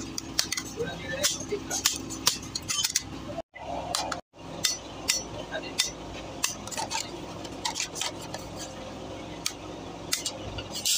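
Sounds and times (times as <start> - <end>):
hammer striking a metal punch: 4.0 - 6.6.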